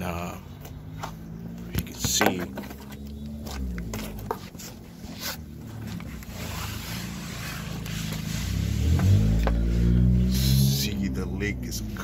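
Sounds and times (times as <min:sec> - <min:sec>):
clothing and cardboard rustling: 0:02.2 - 0:09.7.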